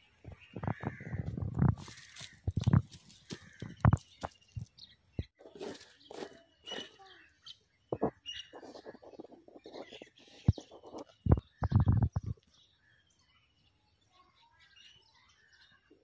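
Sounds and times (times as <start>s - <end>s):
small birds chirping: 0.0s - 16.0s
fast crackling patter: 8.0s - 12.4s.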